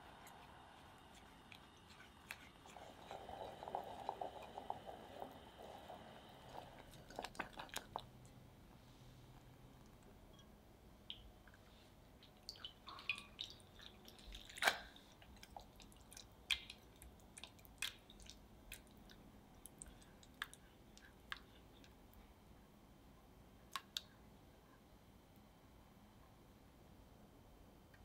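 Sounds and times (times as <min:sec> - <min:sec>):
spatula stirring thick glaze: 0:00.0 - 0:08.1.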